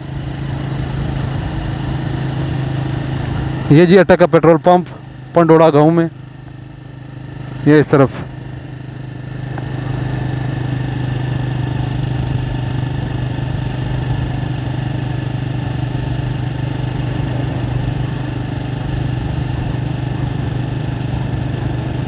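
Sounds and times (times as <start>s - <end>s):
road noise: 0.0s - 22.0s
vehicle engine humming: 0.0s - 22.0s.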